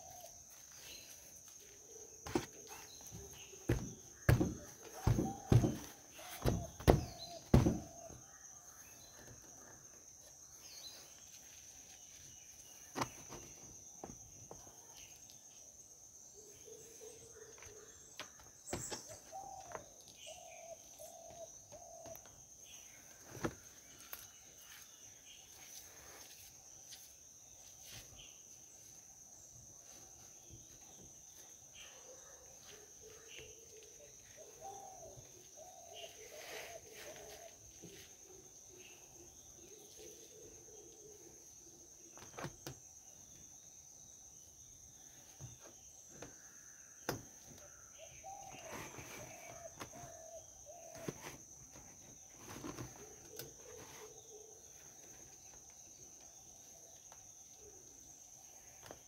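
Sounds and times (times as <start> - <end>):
bird calls: 0.0 - 15.3, 16.4 - 28.4, 29.9 - 43.7, 44.6 - 59.0
isolated knocks: 3.7 - 8.0.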